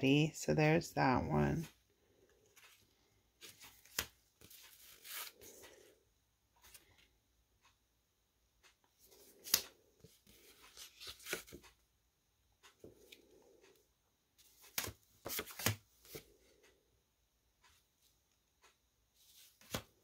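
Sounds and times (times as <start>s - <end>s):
cards tapping and clicking: 3.4s - 5.4s, 9.1s - 11.6s, 14.6s - 16.2s, 19.4s - 20.0s
paper rustling: 9.1s - 11.7s, 14.4s - 16.2s, 19.2s - 19.9s.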